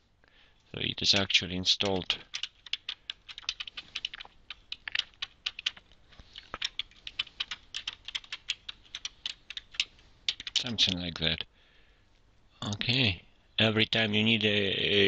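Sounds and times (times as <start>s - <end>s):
typing on keyboard: 1.1s - 11.0s.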